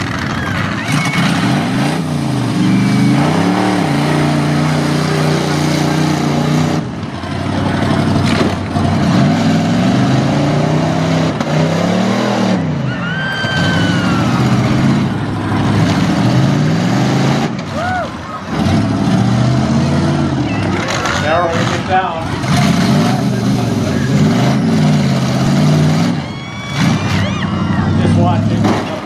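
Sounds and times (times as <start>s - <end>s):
truck engines revving hard: 0.0s - 29.0s.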